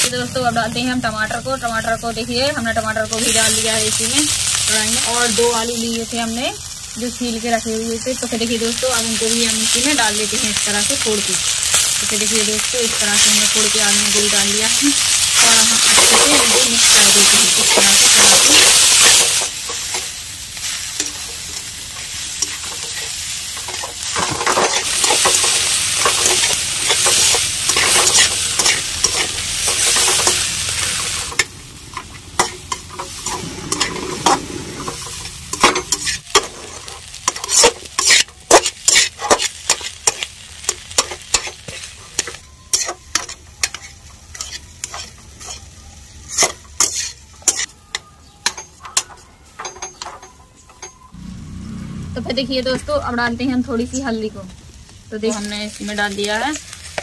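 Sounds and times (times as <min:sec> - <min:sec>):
vegetables sizzling in oil: 0:00.0 - 0:48.6, 0:51.1 - 0:57.0
spoon scraping a pan: 0:11.7 - 0:51.1.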